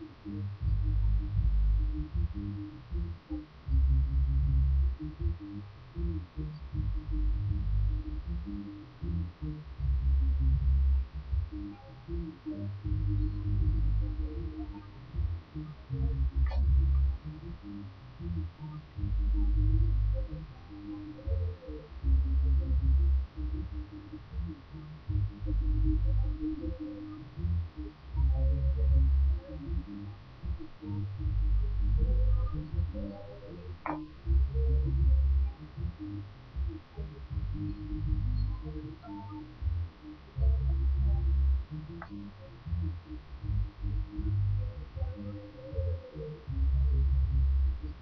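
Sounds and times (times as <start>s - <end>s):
muffled bass-heavy music: 0.0s - 48.0s
steady low hum: 0.0s - 48.0s
soft clicks: 41.9s - 42.3s.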